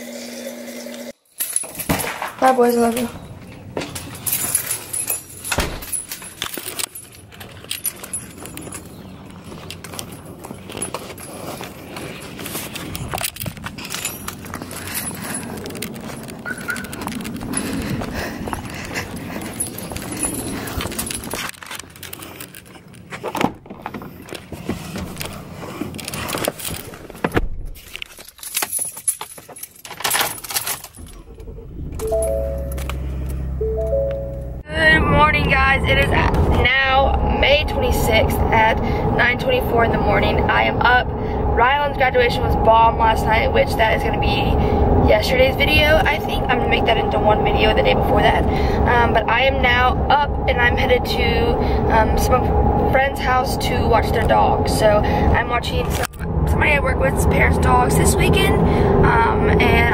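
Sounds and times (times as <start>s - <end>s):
keys jangling: 1.2s - 2.2s, 3.9s - 23.1s, 27.8s - 31.4s, 32.0s - 33.4s.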